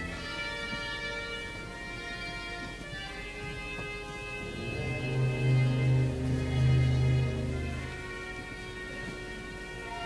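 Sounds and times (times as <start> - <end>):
soft sustained chords: 0.0 - 10.0
deep bass note: 4.4 - 8.0.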